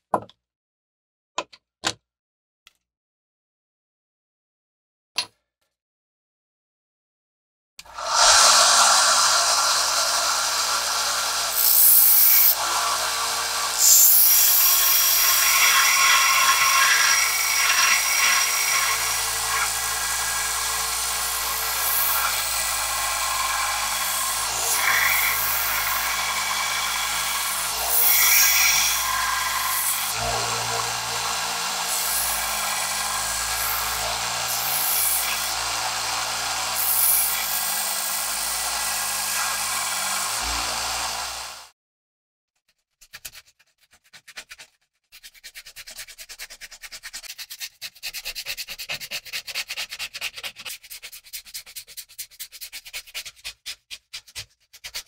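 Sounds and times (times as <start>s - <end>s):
belt sander grinding wood: 7.9s - 41.7s
motor hum: 7.9s - 41.7s.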